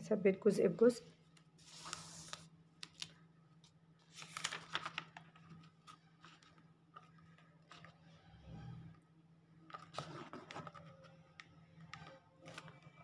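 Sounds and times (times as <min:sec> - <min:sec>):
paper rustling: 0:01.6 - 0:08.1, 0:09.7 - 0:13.0.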